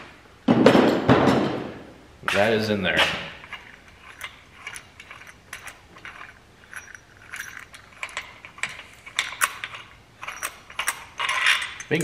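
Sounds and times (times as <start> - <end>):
metal tool clicking: 3.4 - 12.0.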